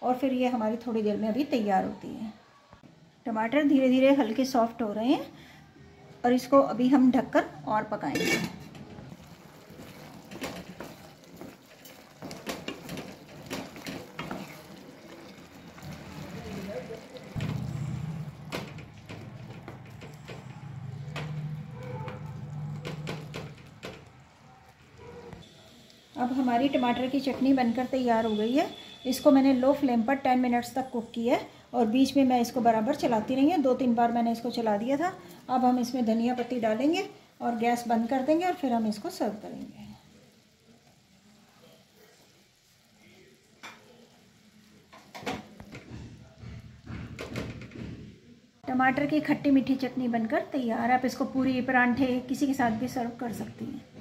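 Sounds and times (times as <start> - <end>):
wooden spatula scraping a pan: 8.0 - 24.2.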